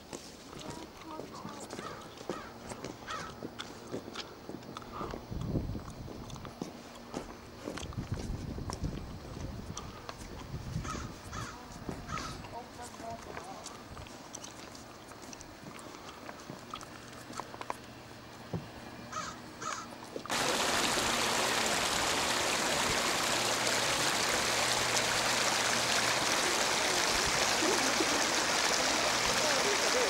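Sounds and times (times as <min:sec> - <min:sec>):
creek rushing over rocks: 0:20.3 - 0:30.0.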